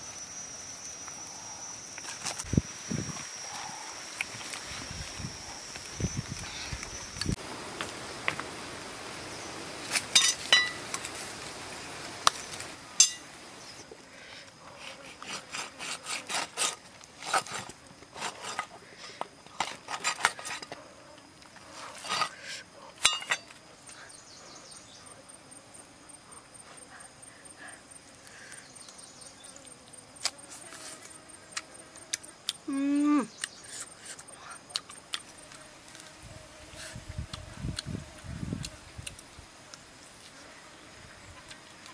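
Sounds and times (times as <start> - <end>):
insect trilling: 0.0 - 7.5, 21.4 - 41.9.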